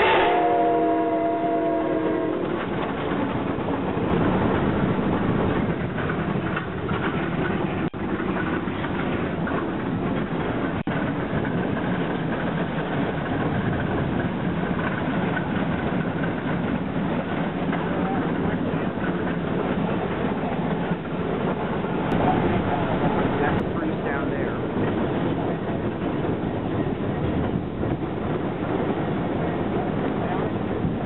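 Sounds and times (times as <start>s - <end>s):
steam whistle blast: 0.0s - 2.4s
steam locomotive working: 0.0s - 31.0s.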